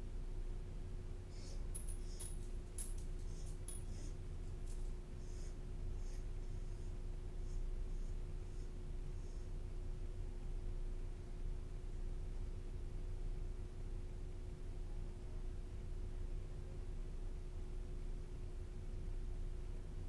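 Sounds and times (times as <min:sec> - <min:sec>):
low room hum: 0:00.0 - 0:20.0
dog claws clicking on hard floor: 0:01.8 - 0:04.0.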